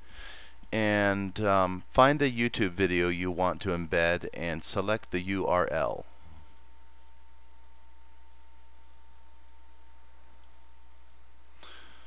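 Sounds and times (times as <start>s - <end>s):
low electrical hum: 0.0s - 12.0s
thin steady whine: 0.0s - 12.0s
computer mouse clicks: 7.6s - 7.9s, 8.7s - 9.6s, 10.2s - 11.2s.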